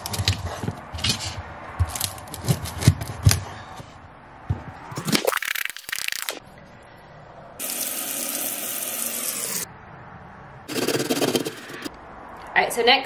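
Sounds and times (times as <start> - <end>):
faucet running into metal sink: 7.6 - 9.5.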